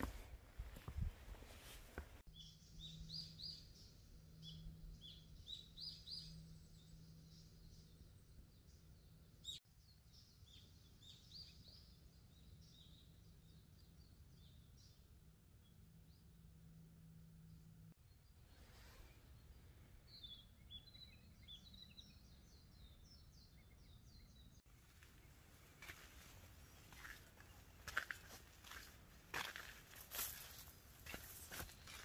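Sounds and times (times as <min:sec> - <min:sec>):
small birds chirping: 0:00.0 - 0:32.0
footsteps on dry leaf litter: 0:24.8 - 0:32.0.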